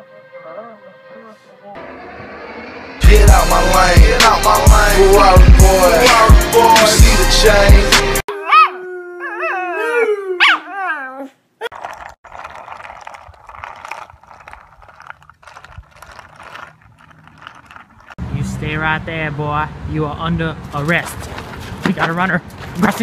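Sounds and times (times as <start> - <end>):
hip-hop music: 2.8 - 8.2
dog howling: 8.3 - 11.3.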